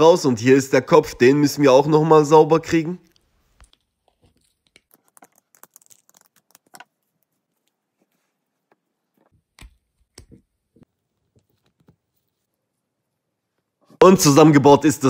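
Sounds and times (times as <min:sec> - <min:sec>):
soft sticky slime sounds: 0:03.1 - 0:10.2.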